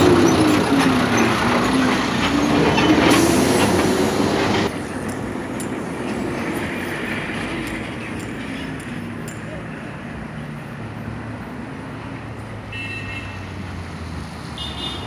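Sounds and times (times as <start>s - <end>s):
heavy vehicle engine rumbling past: 0.0s - 8.4s
steady traffic rumble: 0.0s - 15.0s.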